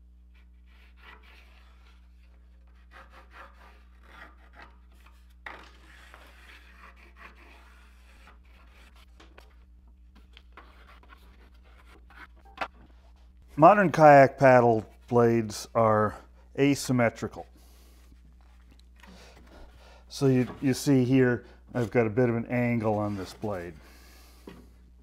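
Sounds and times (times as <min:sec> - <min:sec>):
pencil scratching on wood: 0:00.3 - 0:09.6, 0:10.2 - 0:12.4.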